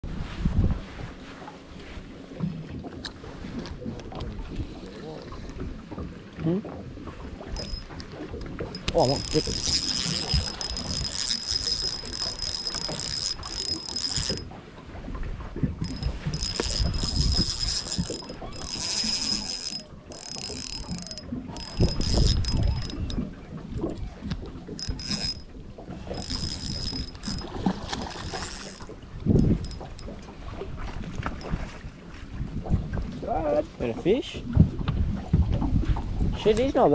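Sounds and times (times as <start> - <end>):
fishing reel whirring and ticking: 7.4 - 14.6, 15.8 - 30.2.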